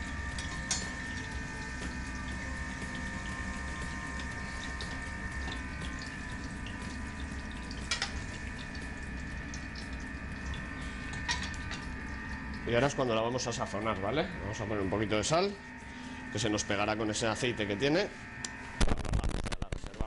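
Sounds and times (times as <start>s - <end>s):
deep-frying sizzle with crackles: 0.0s - 13.8s.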